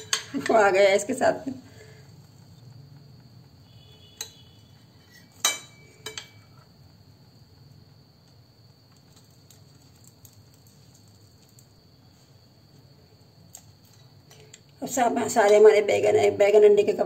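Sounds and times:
metal tongs clinking on plate: 0:05.3 - 0:06.5.

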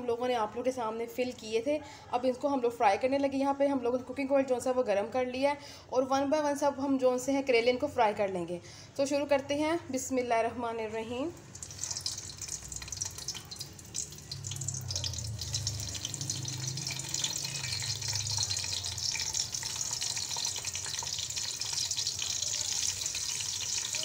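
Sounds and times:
vegetables sizzling in oil: 0:11.4 - 0:24.0.

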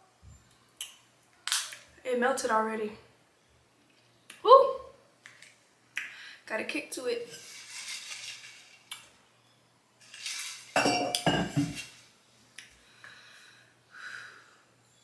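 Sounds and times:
steel tumbler clinking and knocking: 0:10.1 - 0:11.9.

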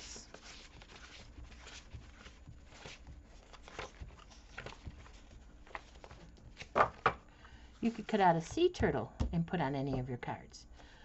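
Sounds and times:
paper rustling and sliding: 0:00.2 - 0:06.8
paper edges flicking and tapping: 0:00.3 - 0:07.1.

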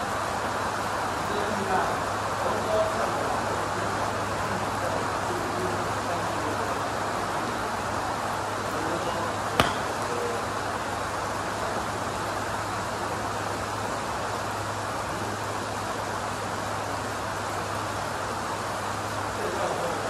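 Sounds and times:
golf club striking ball: 0:09.6 - 0:10.2.

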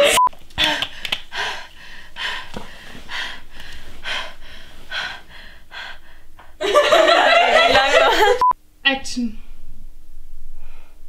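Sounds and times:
woman breathing heavily: 0:00.5 - 0:06.6.

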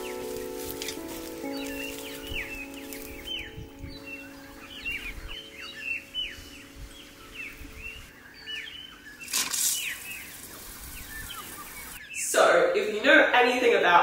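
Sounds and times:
sprinkler spraying water: 0:00.0 - 0:03.3, 0:09.2 - 0:12.0
small birds chirping: 0:00.0 - 0:13.6.

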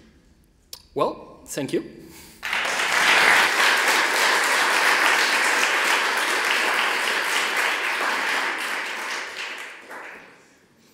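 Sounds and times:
audience applauding: 0:02.4 - 0:10.7.

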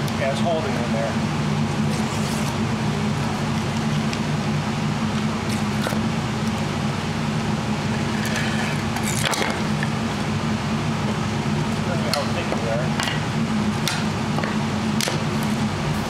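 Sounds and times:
machine drone: 0:00.0 - 0:16.0.

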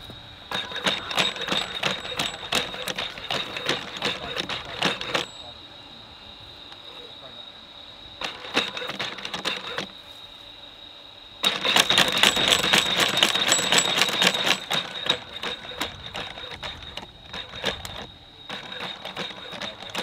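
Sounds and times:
steady high whine: 0:00.0 - 0:20.0
robot leg motors clattering: 0:00.5 - 0:05.4, 0:08.2 - 0:09.9, 0:11.4 - 0:20.0.

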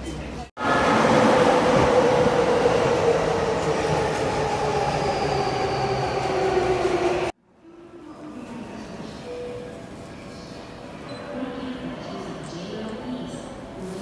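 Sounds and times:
electric train passing: 0:00.6 - 0:07.3.

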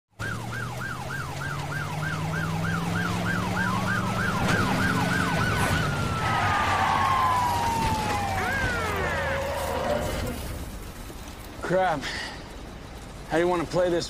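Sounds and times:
police siren slow wail: 0:00.1 - 0:10.7
police siren fast yelp: 0:00.2 - 0:10.2.

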